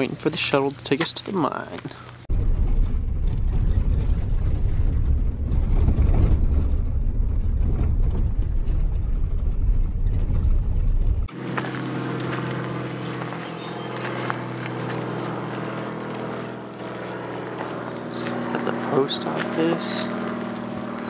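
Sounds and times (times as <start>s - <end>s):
engine and road rumble: 0.0s - 21.0s
steady hum: 2.3s - 21.0s.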